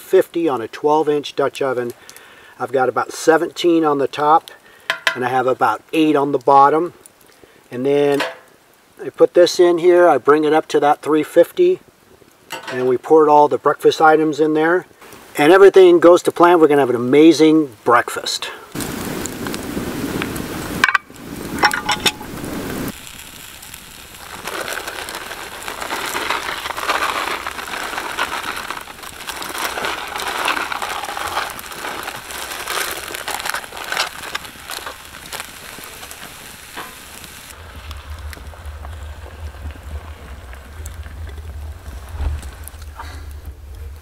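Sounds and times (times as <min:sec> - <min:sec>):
food sizzling: 0:18.7 - 0:44.0
plastic bags crinkling: 0:23.2 - 0:43.5.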